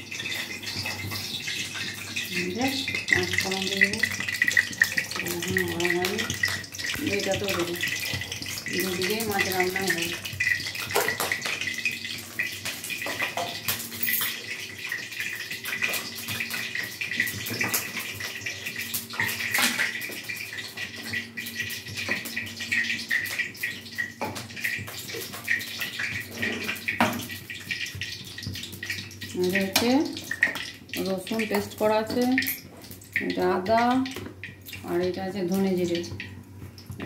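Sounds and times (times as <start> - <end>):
oil sizzling and crackling in wok: 0.0 - 37.0.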